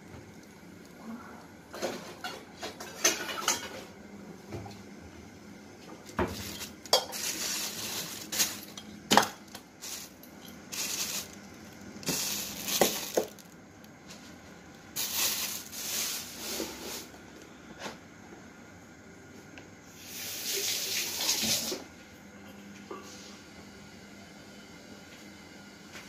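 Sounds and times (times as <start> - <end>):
plastic bag rustling: 6.0 - 17.2.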